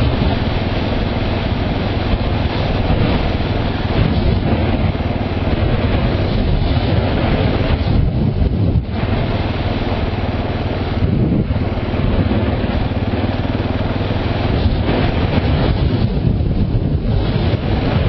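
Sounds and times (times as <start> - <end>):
motorcycle engine running: 0.0 - 18.0
wind and road noise: 0.0 - 18.0.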